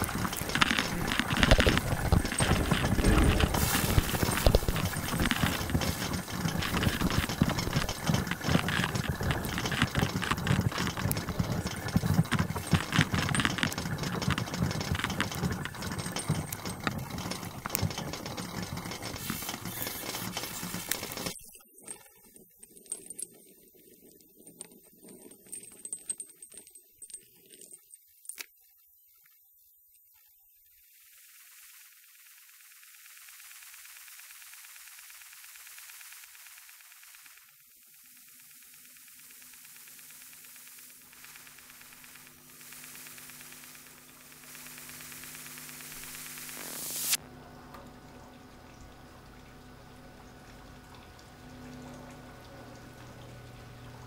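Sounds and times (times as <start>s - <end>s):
low drone: 0.0s - 7.4s
dense clattering and rattling: 0.0s - 21.4s.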